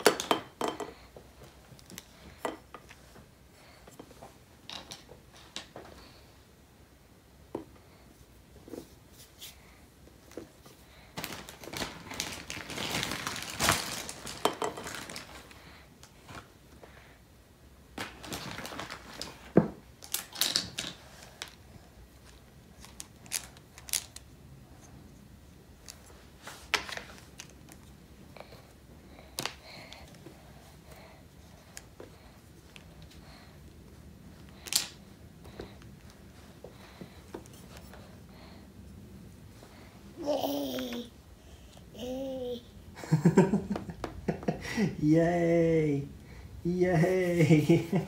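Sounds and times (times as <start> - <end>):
rustling: 8.2 - 16.6, 18.0 - 21.6.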